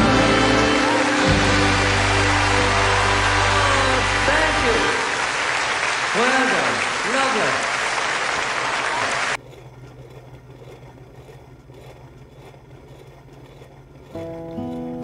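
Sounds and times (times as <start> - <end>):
acoustic guitar strumming: 0.0 - 4.9
audience applause: 0.0 - 9.4.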